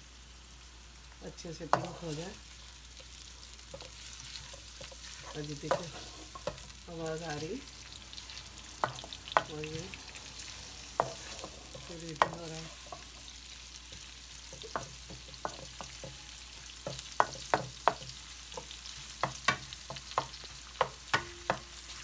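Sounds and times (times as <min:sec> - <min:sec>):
onions sizzling in oil: 0:00.0 - 0:22.0
wooden spoon knocking on pan: 0:11.0 - 0:13.2, 0:14.5 - 0:21.8.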